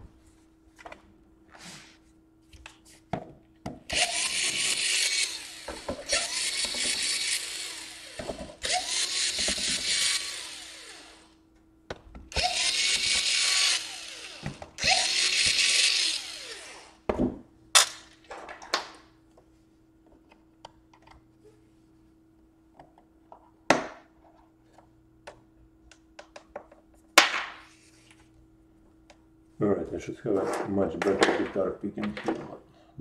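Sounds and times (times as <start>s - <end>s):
cordless drill motor: 3.9s - 11.4s, 12.3s - 17.0s.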